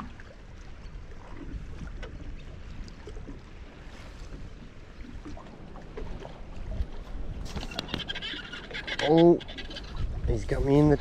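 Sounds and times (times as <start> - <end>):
water lapping at boat hull: 0.0 - 11.0
wind rumbling on microphone: 0.0 - 11.0.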